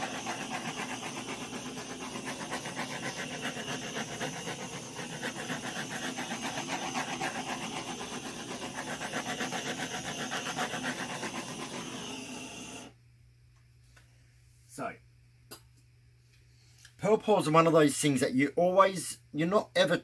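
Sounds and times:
gas torch hissing flame: 0.0s - 13.0s.

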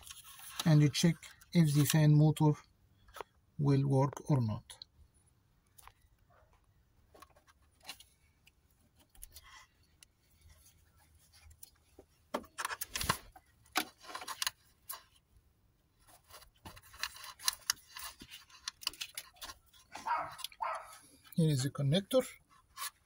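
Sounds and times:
plastic connector clicks and rattles: 16.7s - 19.6s.

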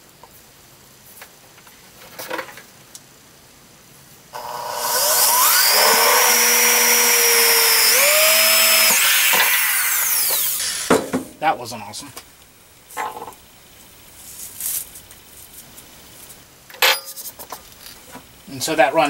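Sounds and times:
power drill whining: 4.4s - 10.9s.

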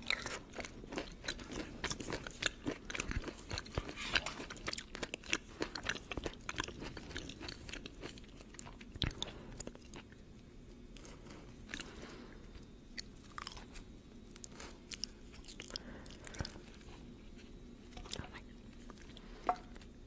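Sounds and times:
chewing crisp food: 0.0s - 20.0s.

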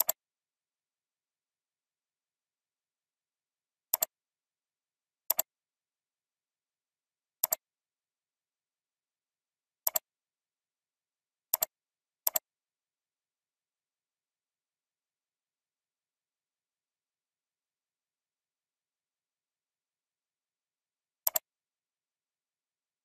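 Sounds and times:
computer mouse clicks: 0.0s - 0.2s, 3.9s - 4.2s, 5.3s - 5.5s, 7.4s - 7.6s, 9.8s - 10.1s, 11.5s - 12.5s, 21.2s - 21.5s.

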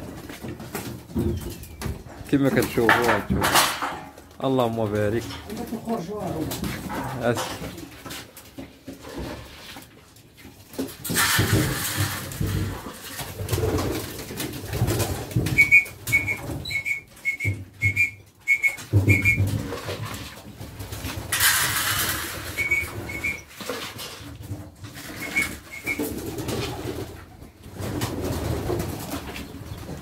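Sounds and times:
rustling noise: 0.0s - 30.0s
short high peeps: 15.6s - 19.4s
pigeons cooing: 25.1s - 27.2s.

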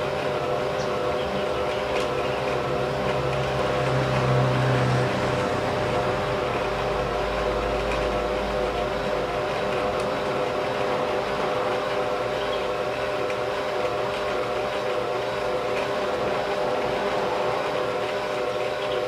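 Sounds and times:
sewing machine motor whirring: 0.0s - 19.0s.

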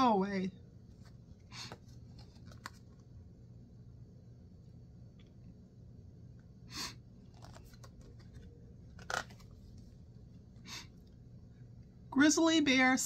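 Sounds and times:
faint room hum: 0.0s - 13.0s
paper pages rustling: 0.9s - 3.1s, 7.2s - 10.0s.

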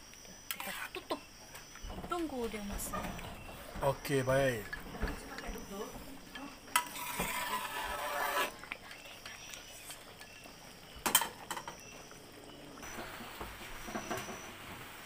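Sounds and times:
broth simmering: 0.0s - 15.0s
metal cookware clanking: 2.0s - 8.5s, 11.0s - 11.9s.

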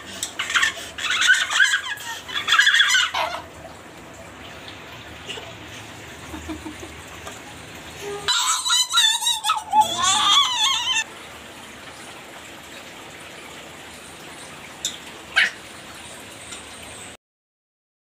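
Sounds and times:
high warbling call: 8.0s - 11.1s.

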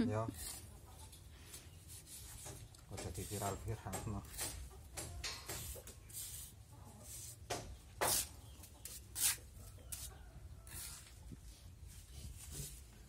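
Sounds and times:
hand scraping wet mortar: 0.3s - 0.8s, 1.9s - 4.7s, 5.4s - 7.4s, 8.0s - 11.1s.

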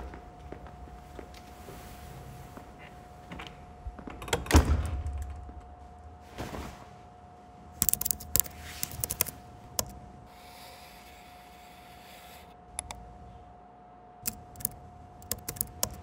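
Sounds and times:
faint high hum: 0.0s - 16.0s
laptop keys clicking: 7.8s - 10.0s, 14.3s - 16.0s.

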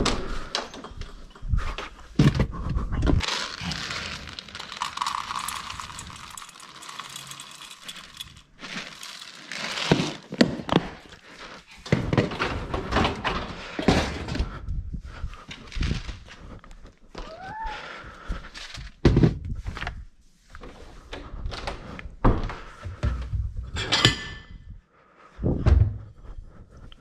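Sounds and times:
kibble clattering into metal bowls: 3.2s - 10.4s
kibble rustling and rattling: 3.2s - 13.2s
plastic bin and lid handled: 7.0s - 11.1s.

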